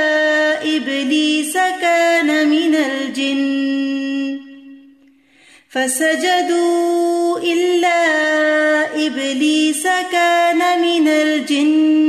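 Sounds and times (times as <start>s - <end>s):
woman reciting melodically: 0.0s - 5.0s, 5.6s - 12.0s.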